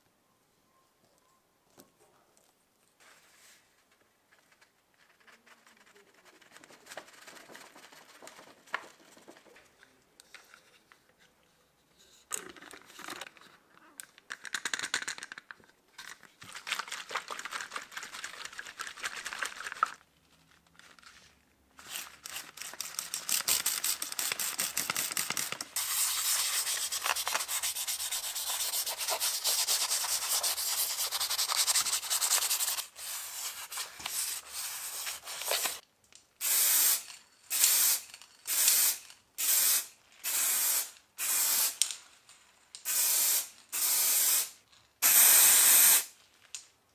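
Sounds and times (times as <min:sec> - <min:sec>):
spray bottle being shaken: 0:16.4 - 0:20.0, 0:21.9 - 0:35.8, 0:36.4 - 0:41.8, 0:42.8 - 0:46.1.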